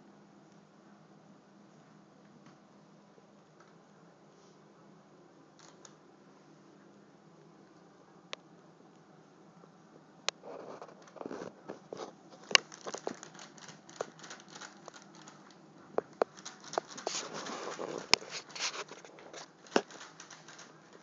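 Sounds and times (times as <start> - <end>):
bag crinkling and rustling: 10.6 - 21.0.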